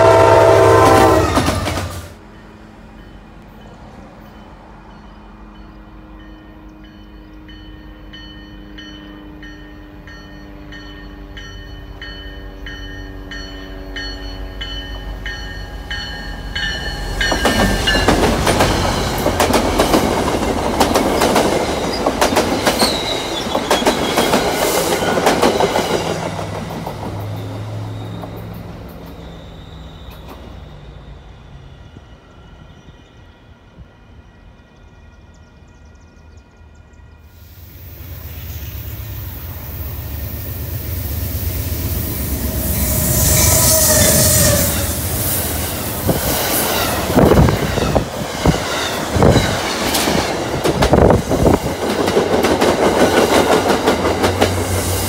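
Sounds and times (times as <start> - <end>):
diesel train passing: 0.0 - 55.0
faint bell ringing: 2.4 - 18.0
wheel squeal: 27.4 - 31.8.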